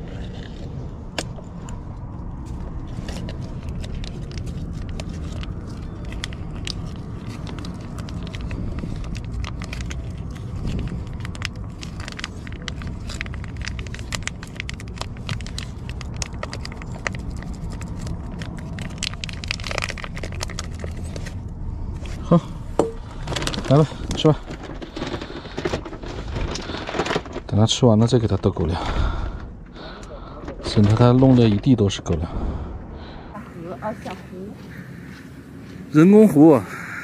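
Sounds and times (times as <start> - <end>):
foil pouch crinkling: 2.8 - 21.5, 23.0 - 28.5
low rumble: 28.8 - 33.9.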